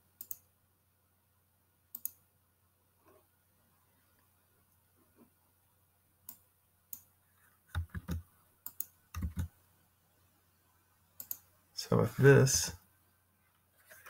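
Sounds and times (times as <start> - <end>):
mouse clicks: 0.2 - 0.4, 1.9 - 2.2, 7.7 - 9.5, 11.2 - 11.5
keyboard key taps: 7.7 - 8.2.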